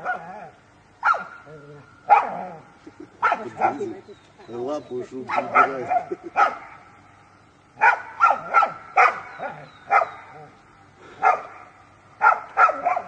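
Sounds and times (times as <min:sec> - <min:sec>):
dog barking: 0:00.0 - 0:00.4, 0:01.0 - 0:01.4, 0:02.1 - 0:02.6, 0:03.2 - 0:04.0, 0:05.2 - 0:06.8, 0:07.8 - 0:10.5, 0:11.2 - 0:13.0.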